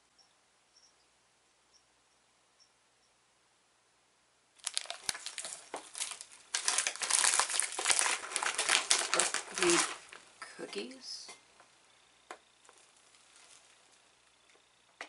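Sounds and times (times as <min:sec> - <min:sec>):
plastic bag crinkling: 0:04.6 - 0:10.5, 0:12.6 - 0:14.0.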